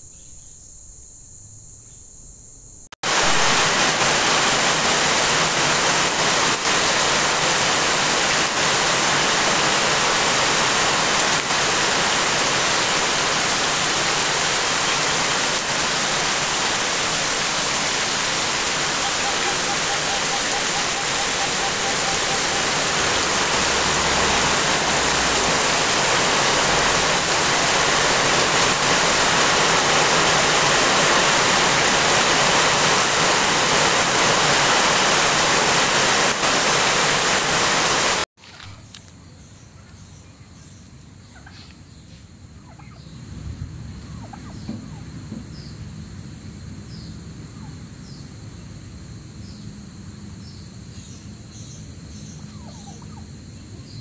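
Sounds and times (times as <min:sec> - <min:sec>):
heavy rain pouring: 0:03.0 - 0:38.8
faint chirps: 0:16.4 - 0:23.2, 0:38.4 - 0:54.0.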